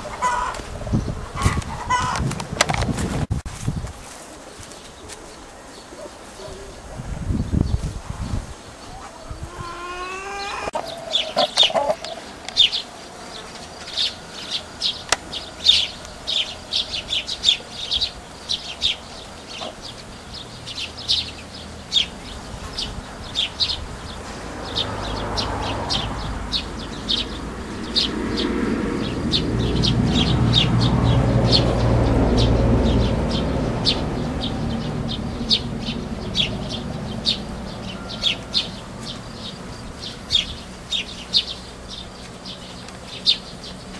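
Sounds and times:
small birds chirping: 0:04.3 - 0:43.9.

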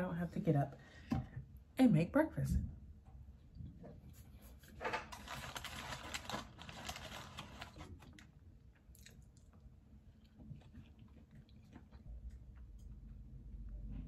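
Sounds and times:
rustling and crinkling handling: 0:03.8 - 0:08.4.

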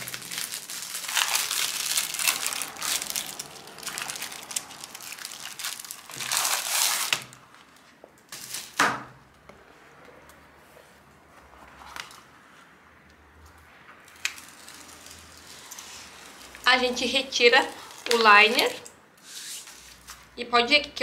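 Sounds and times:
plastic wrapping crinkling: 0:00.0 - 0:08.8, 0:14.0 - 0:20.3
sharp plastic crackle: 0:00.0 - 0:09.2, 0:14.0 - 0:20.3.

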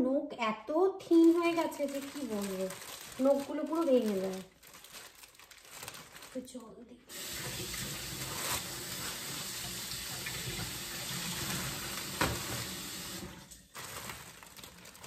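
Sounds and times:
plastic bag under water stream: 0:01.1 - 0:15.0
faucet running into sink: 0:07.1 - 0:13.7.

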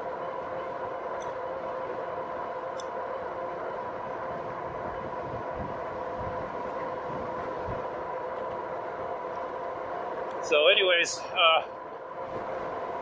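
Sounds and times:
electric hub motor whine: 0:00.0 - 0:13.0
tyres on road: 0:00.0 - 0:13.0
wind noise: 0:04.0 - 0:10.2, 0:12.2 - 0:13.0.

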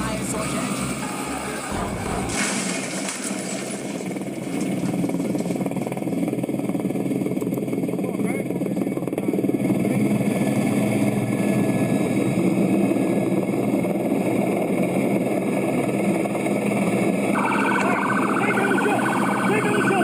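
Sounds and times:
steady engine drone: 0:00.0 - 0:02.2, 0:04.0 - 0:20.0
police siren warbling: 0:17.3 - 0:20.0.

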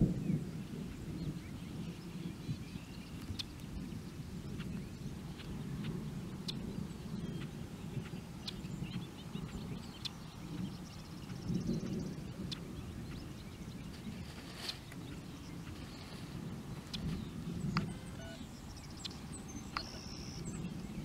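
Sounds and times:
birds chirping: 0:00.0 - 0:21.0
distant thunder rumbling: 0:00.0 - 0:21.0
bird trilling: 0:16.8 - 0:20.7.

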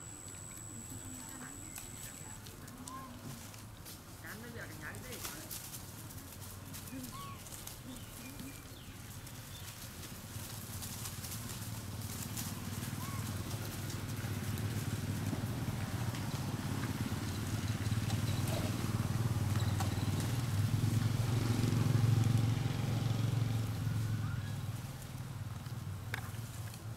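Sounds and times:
faint scattered clicks: 0:00.0 - 0:14.9.

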